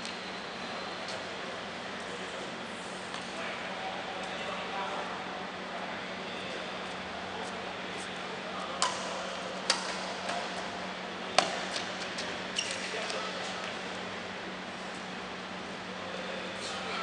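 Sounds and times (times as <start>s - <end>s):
racket hitting shuttlecock: 8.8s - 10.6s, 11.4s - 11.9s.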